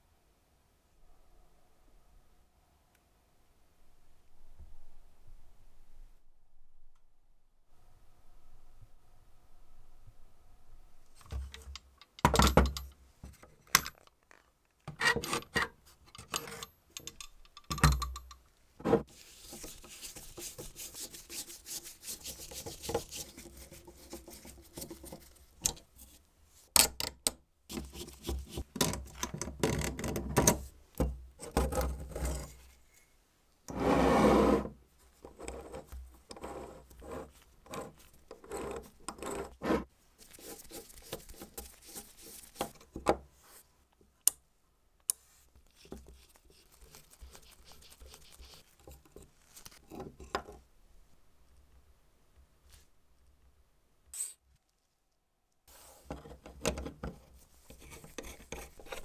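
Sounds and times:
metal parts clinking: 16.2 - 18.4.

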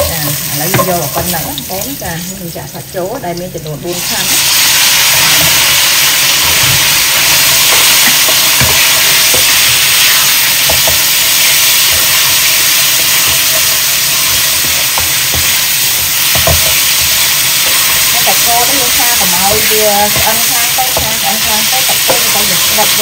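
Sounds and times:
beef sizzling in hot oil: 0.0 - 23.0
spatula scraping pan: 4.7 - 23.0.

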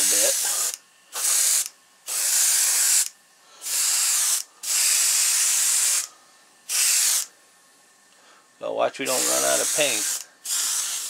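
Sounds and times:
airbrush spraying paint: 0.0 - 6.1, 6.7 - 7.3, 9.0 - 11.0.

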